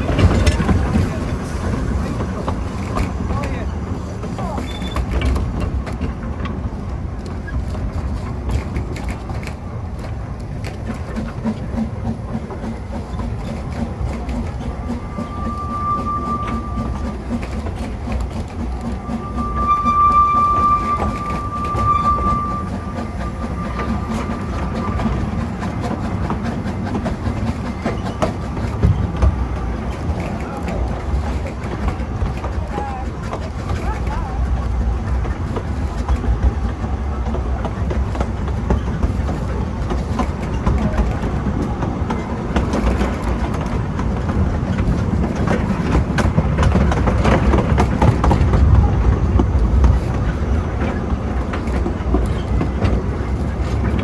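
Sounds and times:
steam train rumbling: 0.0s - 54.0s
wheels clicking over rail joints: 0.0s - 54.0s
steam whistle: 14.9s - 17.1s, 18.9s - 24.4s.

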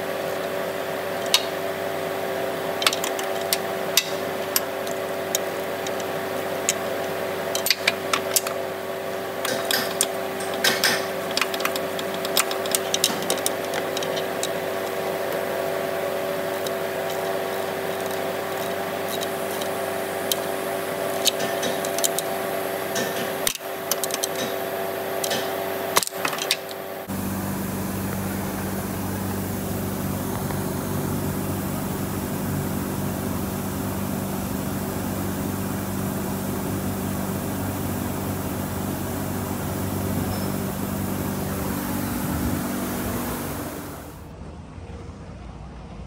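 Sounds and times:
car engine idling: 0.0s - 33.3s
steady hum: 0.0s - 46.0s
sharp clicks and knocks: 1.2s - 1.6s, 2.8s - 8.6s, 9.4s - 15.6s, 16.4s - 24.6s, 25.2s - 26.8s.

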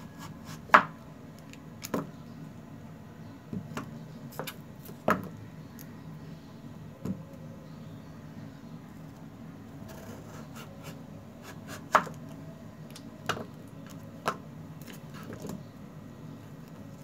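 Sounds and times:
steady low hum: 0.0s - 17.0s
knife chopping on cutting board: 11.4s - 12.2s.

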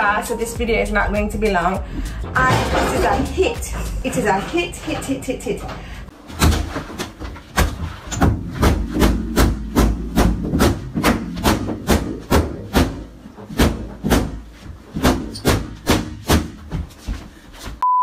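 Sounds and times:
stick whacking inflatable toy: 7.6s - 16.8s.

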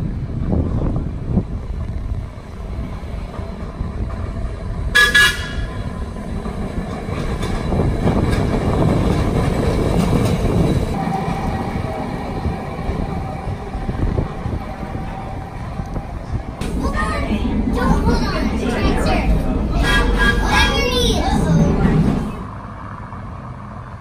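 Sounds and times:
streetcar rumbling on rails: 0.0s - 24.0s
streetcar horn toot: 4.9s - 6.0s, 19.7s - 20.9s.

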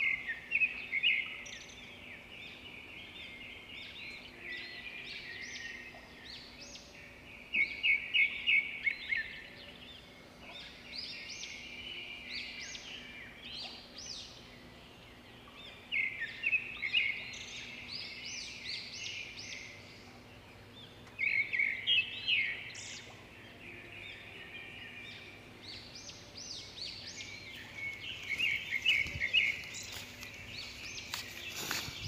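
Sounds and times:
small birds chirping: 0.0s - 32.0s.

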